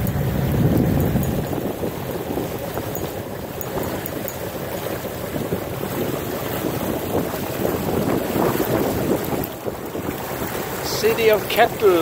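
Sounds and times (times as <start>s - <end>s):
water rushing past boat bow: 0.0s - 12.0s
wind buffeting microphone: 0.0s - 12.0s.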